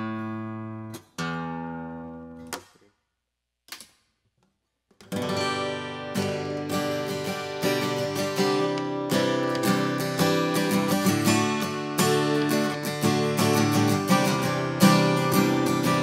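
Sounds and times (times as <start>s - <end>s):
acoustic guitar chords strummed: 5.1s - 16.0s.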